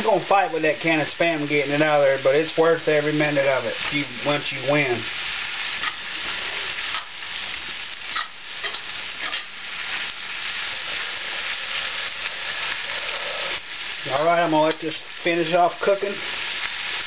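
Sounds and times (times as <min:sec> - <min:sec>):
food sizzling in a skillet: 0:00.0 - 0:17.0
utensil scraping a pan: 0:10.8 - 0:13.6.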